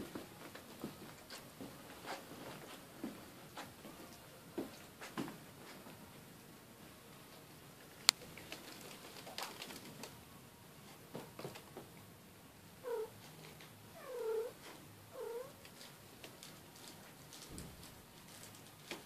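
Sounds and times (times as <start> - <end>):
cat meowing: 12.8 - 13.1, 14.0 - 14.6, 15.2 - 15.5.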